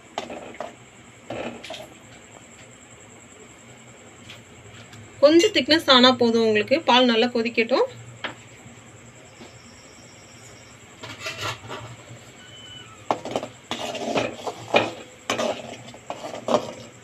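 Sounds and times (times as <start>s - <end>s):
metal utensil stirring in metal pot: 13.1s - 17.0s.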